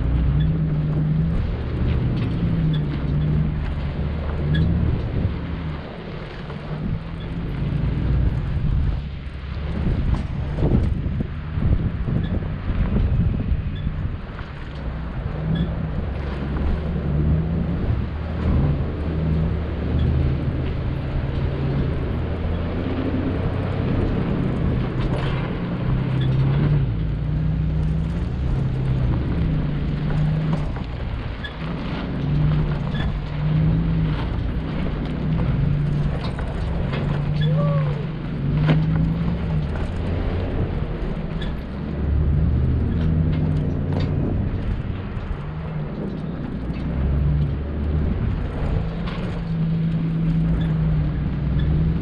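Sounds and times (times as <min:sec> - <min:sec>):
truck engine revving: 0:00.0 - 0:52.0
body knocks and rattles: 0:23.1 - 0:37.8, 0:38.4 - 0:52.0.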